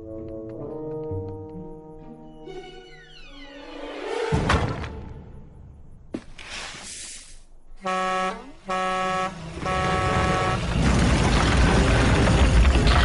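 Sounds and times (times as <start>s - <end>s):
horn honks: 7.8s - 10.8s
loud rumble: 9.5s - 13.0s.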